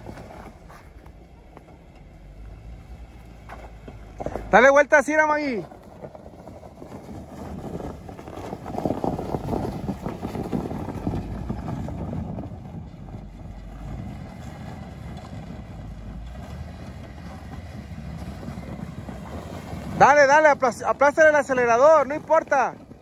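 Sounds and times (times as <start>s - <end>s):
motor vehicle running: 0.0s - 23.0s
wind buffeting microphone: 5.6s - 23.0s.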